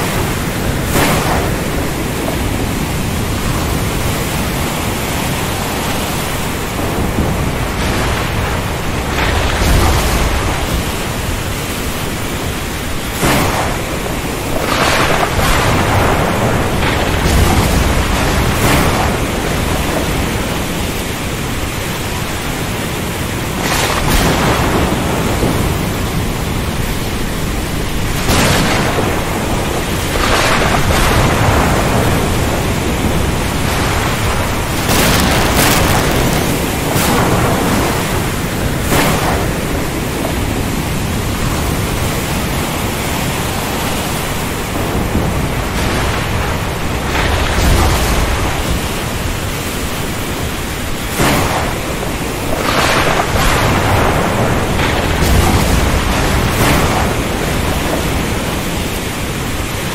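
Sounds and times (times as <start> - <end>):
thunder rumbling: 0.0 - 59.9
waves crashing: 0.0 - 59.9
wind and waves rushing: 0.0 - 59.9.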